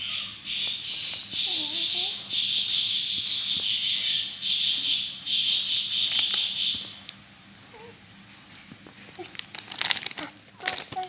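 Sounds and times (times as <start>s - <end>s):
high-pitched insect trilling: 0.0s - 10.7s
thin steady high tone: 0.0s - 11.0s
plastic bag crinkling: 6.0s - 7.1s, 8.6s - 11.0s.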